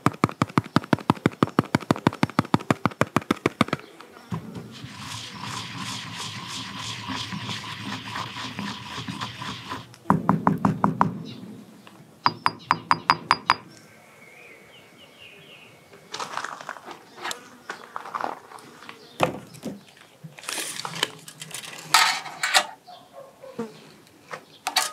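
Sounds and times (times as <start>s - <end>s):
pestle grinding in stone mortar: 4.7s - 9.9s
stone pestle knocking: 12.3s - 13.6s
metal mesh cover rattling: 20.8s - 22.8s, 24.7s - 24.9s.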